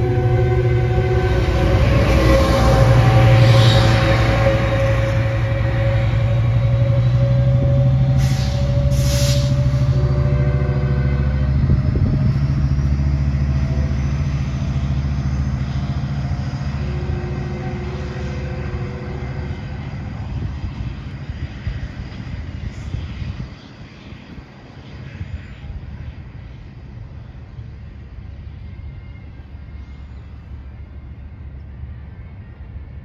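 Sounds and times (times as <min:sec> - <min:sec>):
diesel locomotive engine rumble: 0:00.0 - 0:33.0
short hisses: 0:08.2 - 0:09.7.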